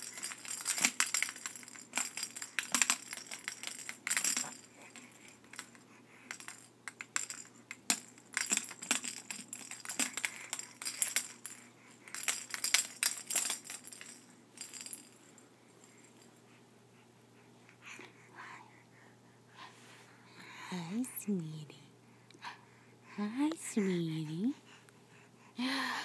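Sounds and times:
plastic bead rattle shaking: 0.0 - 16.0.

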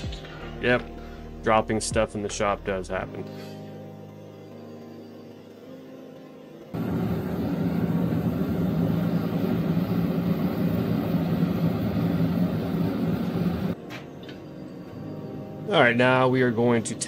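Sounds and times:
gas forge burner rushing: 6.8 - 14.0.

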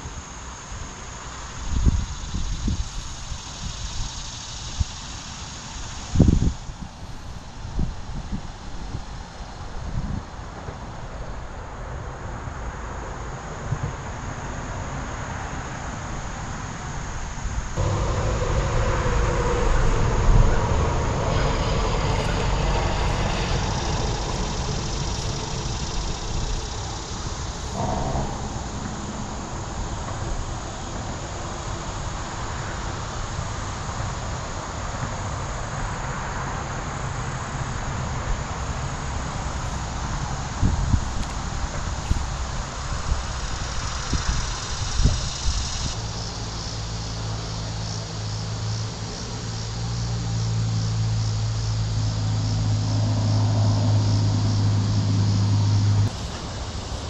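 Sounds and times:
even hiss: 0.0 - 11.5, 12.4 - 57.0
high insect drone: 0.0 - 57.0
wind on microphone: 6.0 - 11.0, 17.4 - 32.3, 39.3 - 46.0
droning hum: 15.6 - 57.0
low rumble: 17.8 - 32.0.

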